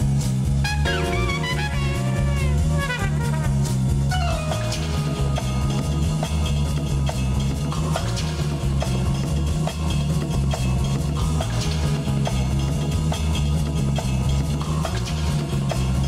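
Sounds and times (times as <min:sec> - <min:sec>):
drum kit: 0:00.0 - 0:16.0
walking bass line: 0:00.0 - 0:16.0
lead melody with bending notes: 0:00.6 - 0:06.9.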